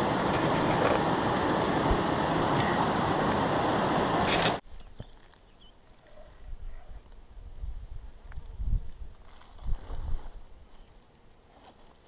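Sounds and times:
loud rushing noise: 0.0s - 4.6s
faint high insect-like hum: 4.6s - 12.0s.

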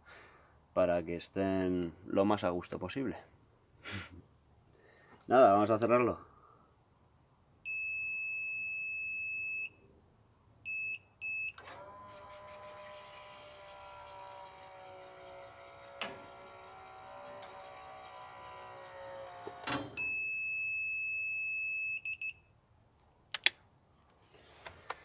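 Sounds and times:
electric motor whine: 11.6s - 20.0s.

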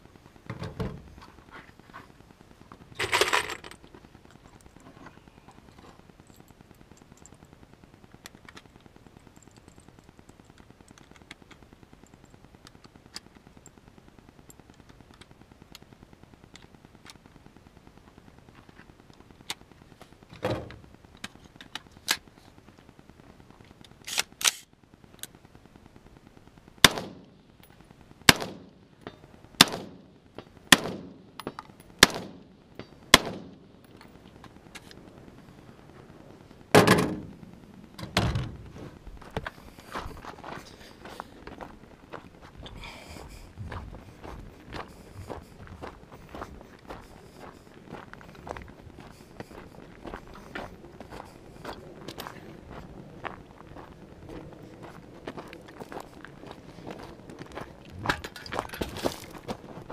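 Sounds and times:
rifle gunshots: 26.8s - 27.2s, 28.3s - 28.7s, 29.6s - 30.0s, 30.7s - 31.2s, 32.0s - 32.4s, 33.1s - 33.6s.

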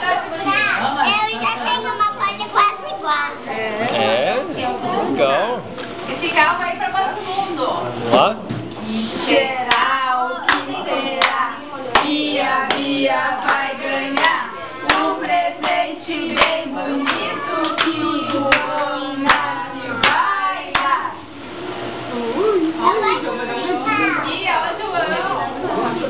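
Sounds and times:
group singing: 9.0s - 21.4s
people clapping in time: 10.5s - 11.4s, 12.0s - 15.8s.

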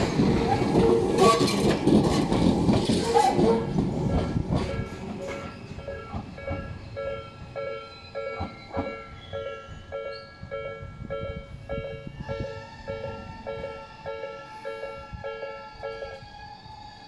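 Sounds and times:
train wheels clacking on rail joints: 0.0s - 7.6s, 8.2s - 9.1s
level crossing warning bell: 4.1s - 16.2s.

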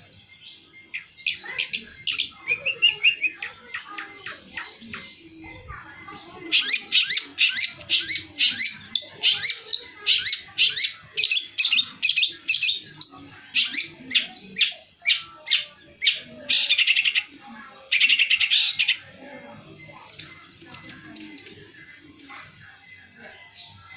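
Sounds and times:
bird chattering: 0.0s - 23.5s
harsh rattling bird trills: 6.0s - 22.9s.

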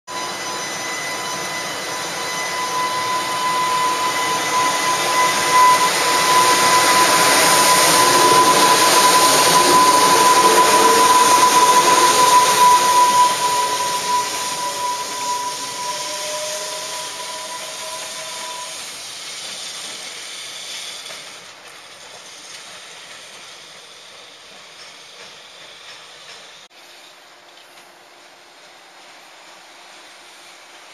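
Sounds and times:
steady high whine: 0.1s - 18.7s
whine rising in pitch: 0.1s - 18.7s
electric locomotive passing: 0.1s - 30.9s.

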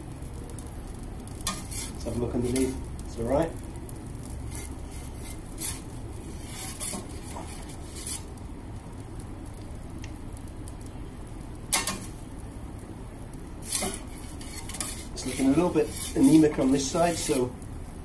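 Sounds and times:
gas flame rushing: 0.0s - 8.5s, 11.4s - 18.0s
metal peel scraping and clinking: 1.4s - 2.8s, 4.5s - 8.3s, 11.7s - 12.2s, 13.6s - 17.5s.

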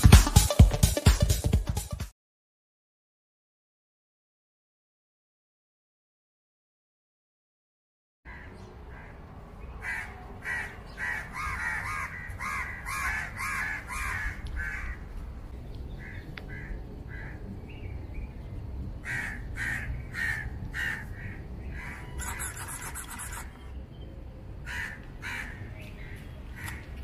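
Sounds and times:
crows cawing: 8.3s - 15.2s, 16.0s - 17.4s, 19.0s - 23.5s, 24.6s - 27.0s.

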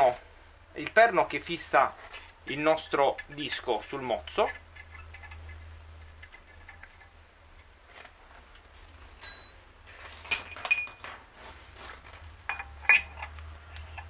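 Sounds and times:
metal parts clinking: 9.2s - 11.2s, 12.5s - 13.4s.

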